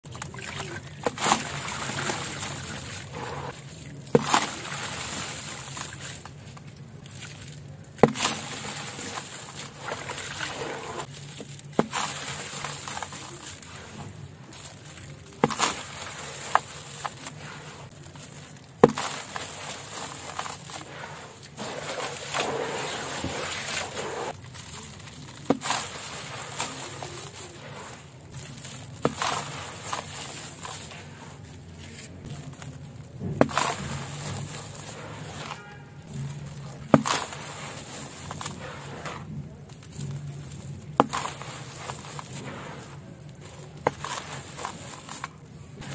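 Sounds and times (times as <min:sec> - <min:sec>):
wet sand sloshing and crumbling: 0:00.0 - 0:45.9
sharp splashes: 0:00.2 - 0:31.3.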